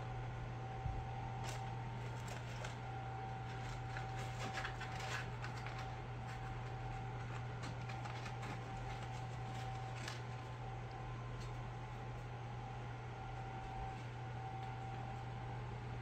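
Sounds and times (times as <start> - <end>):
steady low hum: 0.0 - 16.0
cardboard carton crinkling: 1.4 - 10.6.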